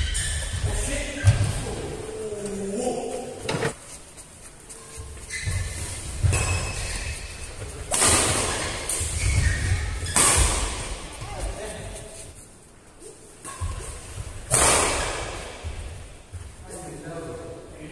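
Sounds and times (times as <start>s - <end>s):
rackets hitting shuttlecock: 6.2s - 11.3s, 13.4s - 15.6s.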